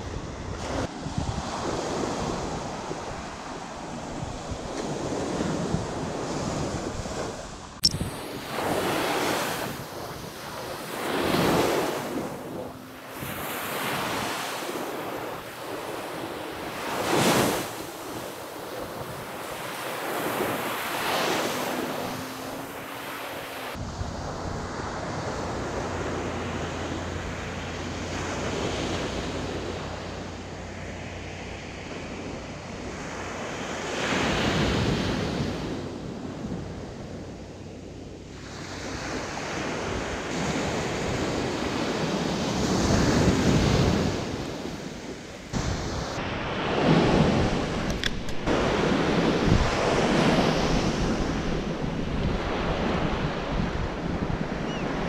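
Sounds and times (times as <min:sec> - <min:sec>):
surf crashing on beach: 0:00.0 - 0:37.3, 0:38.3 - 0:55.0
wind buffeting microphone: 0:00.0 - 0:55.0.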